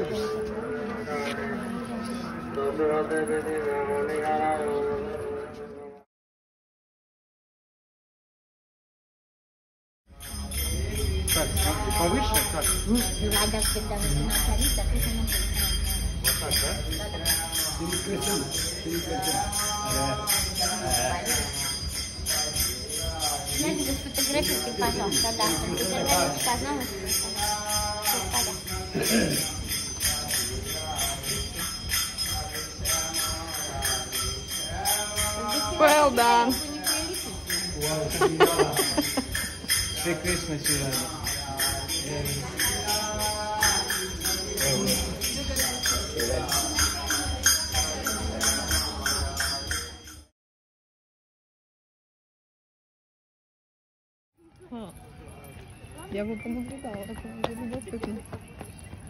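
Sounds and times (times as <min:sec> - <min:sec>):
people's voices: 0:00.0 - 0:06.0, 0:10.2 - 0:50.2, 0:54.4 - 0:59.0
small bells jingling: 0:10.1 - 0:50.3, 0:54.5 - 0:59.0.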